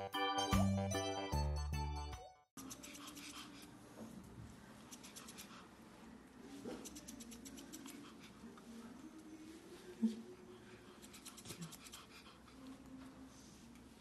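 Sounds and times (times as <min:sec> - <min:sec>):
scissors snipping fur: 0:02.6 - 0:03.7, 0:04.8 - 0:05.6, 0:06.7 - 0:08.2, 0:11.0 - 0:12.2.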